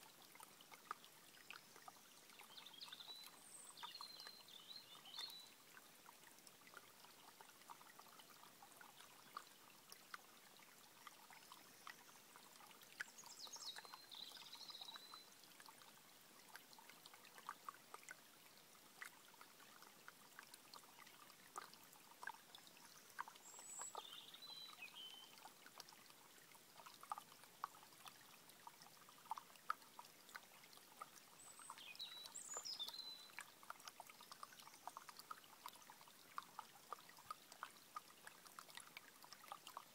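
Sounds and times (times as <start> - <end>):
stream trickling over stones: 0.0 - 39.9
songbird singing: 1.4 - 5.6, 13.0 - 15.3, 22.8 - 25.5, 31.4 - 33.5.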